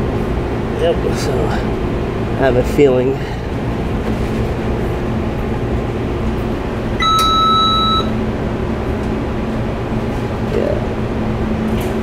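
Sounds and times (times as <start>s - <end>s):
low background hum: 0.0s - 12.0s
high-pitched electronic beep: 7.0s - 8.1s.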